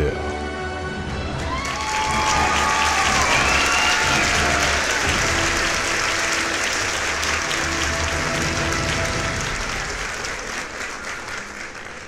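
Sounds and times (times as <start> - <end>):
applause: 1.3 - 12.0.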